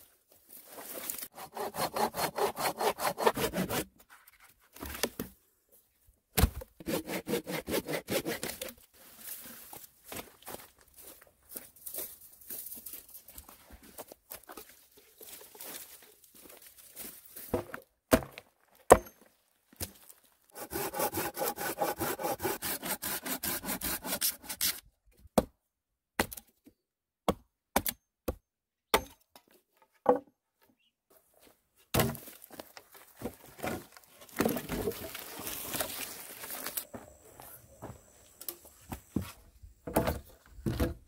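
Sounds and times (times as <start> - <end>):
hand saw cutting log: 1.3 - 3.9, 6.8 - 8.8, 20.6 - 24.9
hatchet chopping wood: 6.4 - 8.5, 18.1 - 19.2, 26.2 - 26.5, 27.2 - 29.2
footsteps in leaf litter: 34.0 - 38.0.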